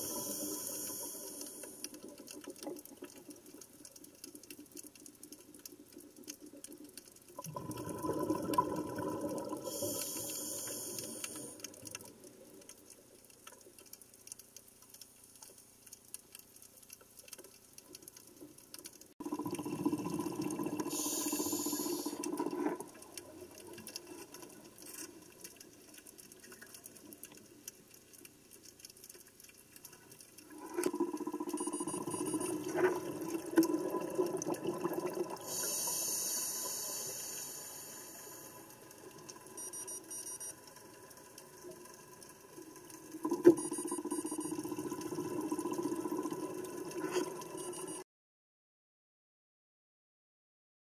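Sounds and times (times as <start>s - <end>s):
faint clicking: 0.0s - 19.2s, 20.7s - 48.0s
diver's bubbles burbling: 7.4s - 9.8s, 19.2s - 23.8s, 30.5s - 35.6s, 43.0s - 47.6s.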